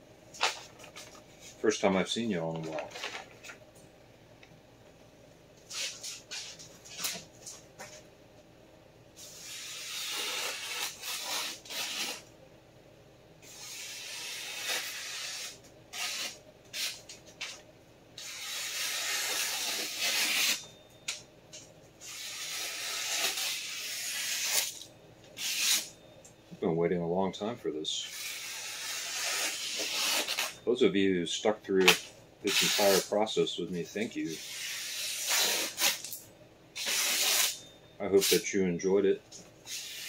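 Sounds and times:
paper rustling and crackling: 0:02.4 - 0:03.6
knife slicing paper hissing: 0:09.2 - 0:12.2, 0:13.4 - 0:17.0, 0:18.2 - 0:20.6, 0:22.0 - 0:24.8, 0:25.4 - 0:25.9, 0:28.0 - 0:30.6, 0:31.8 - 0:33.1, 0:34.3 - 0:36.0, 0:36.8 - 0:37.6, 0:39.7 - 0:40.0.

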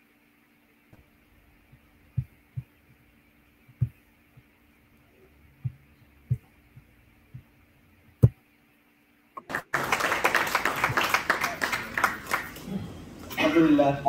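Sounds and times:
steady low hum: 0:00.0 - 0:14.0
soft low thumps: 0:00.9 - 0:08.4
audience applauding: 0:09.4 - 0:12.7.

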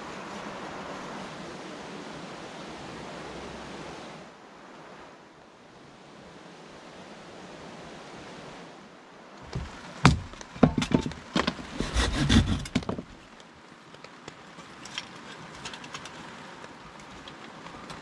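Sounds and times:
light rain hissing: 0:00.0 - 0:11.9
hatchet chopping kindling: 0:09.5 - 0:13.2.

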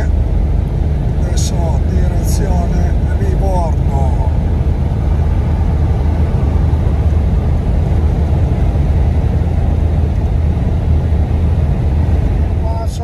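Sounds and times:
road noise: 0:00.0 - 0:13.0
truck engine drone: 0:00.0 - 0:13.0.

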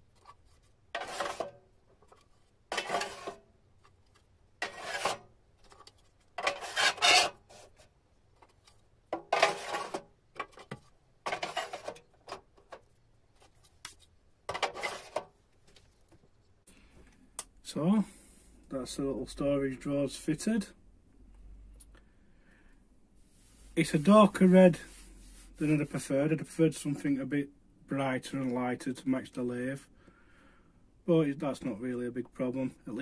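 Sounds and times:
plastic drawers scraping into cabinet: 0:01.0 - 0:01.5, 0:02.7 - 0:03.4, 0:04.6 - 0:05.2, 0:06.4 - 0:07.8, 0:09.2 - 0:12.4, 0:14.5 - 0:15.3.

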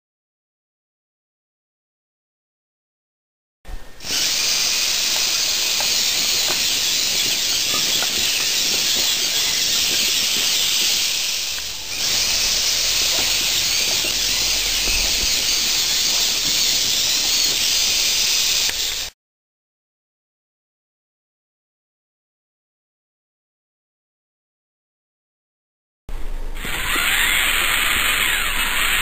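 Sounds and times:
steady loud hiss: 0:03.7 - 0:19.1, 0:26.1 - 0:29.0.

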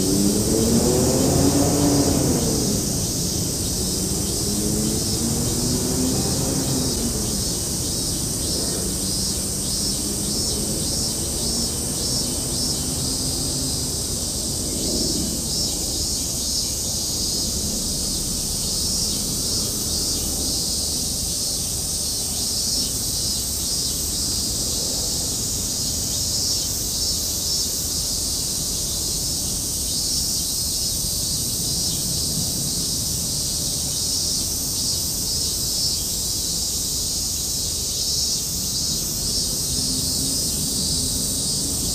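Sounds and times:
insects chirring: 0:00.0 - 0:41.9
low rumble: 0:14.6 - 0:21.0.

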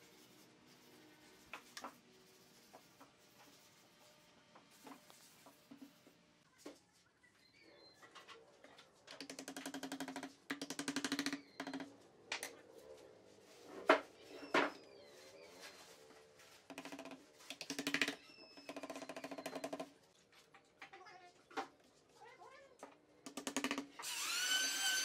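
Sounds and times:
faint bird chirps: 0:07.2 - 0:08.2.

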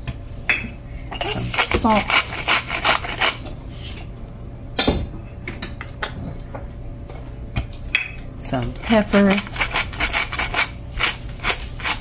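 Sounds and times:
utensils clinking on dishes: 0:00.5 - 0:04.1, 0:07.9 - 0:12.0.

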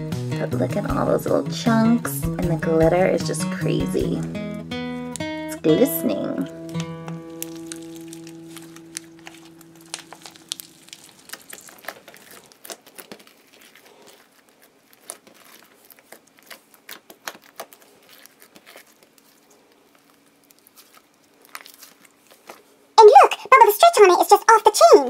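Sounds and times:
slime squishing sticky clicks: 0:06.7 - 0:13.3.

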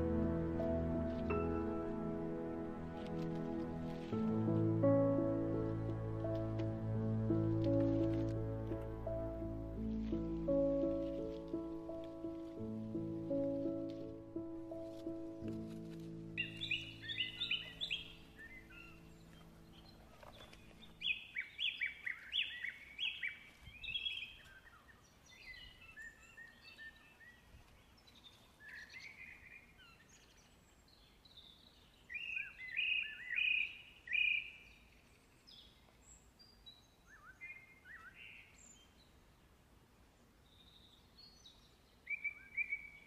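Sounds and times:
songbirds singing: 0:03.6 - 0:43.0.

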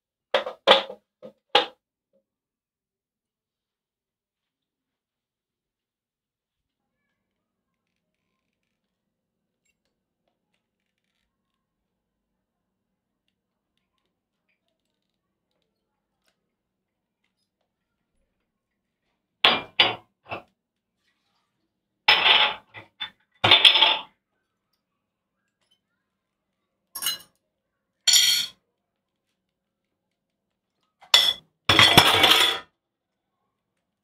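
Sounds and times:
kitchenware clinking and clattering: 0:00.4 - 0:01.8, 0:19.4 - 0:20.5, 0:22.1 - 0:24.1, 0:27.0 - 0:27.4, 0:28.1 - 0:28.6, 0:31.0 - 0:32.7.

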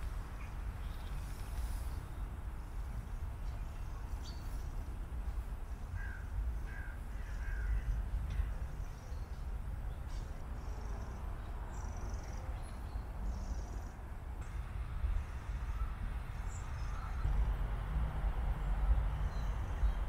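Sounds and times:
steady low rumble: 0:00.0 - 0:20.0
crow cawing: 0:06.0 - 0:07.9.

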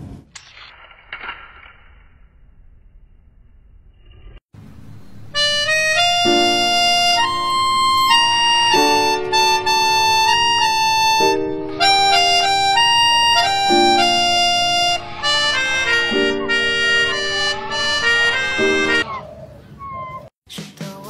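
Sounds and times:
background music with sustained chords: 0:05.1 - 0:19.0.

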